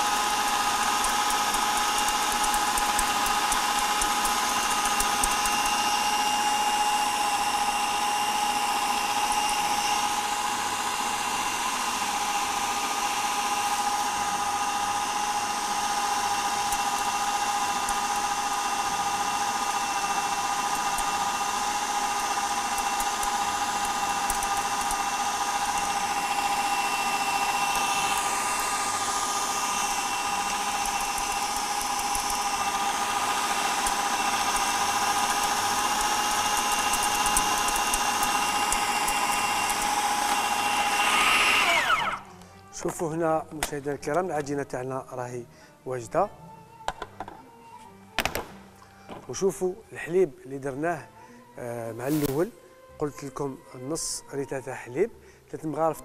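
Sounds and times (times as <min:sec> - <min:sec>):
food processor motor whining: 0:00.0 - 0:44.5.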